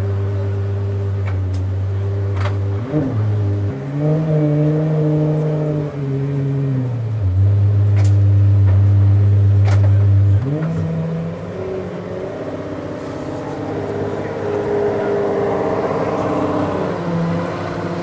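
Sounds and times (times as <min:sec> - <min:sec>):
car engine idling and revving: 0:00.0 - 0:18.0.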